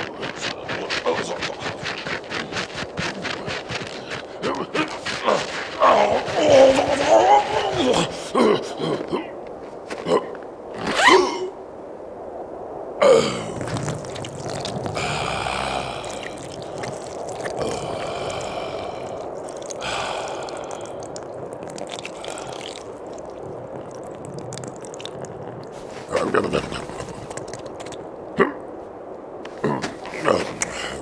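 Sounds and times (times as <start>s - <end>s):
liquid trickling into snow: 0.0s - 8.2s, 13.2s - 28.1s.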